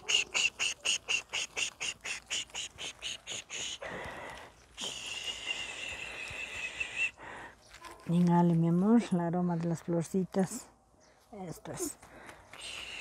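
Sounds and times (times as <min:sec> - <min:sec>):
animal chirping: 0:00.0 - 0:03.8.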